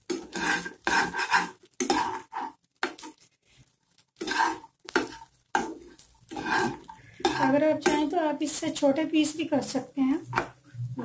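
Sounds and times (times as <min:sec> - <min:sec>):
metal spoon scraping wok: 0:00.0 - 0:03.3, 0:04.2 - 0:08.9.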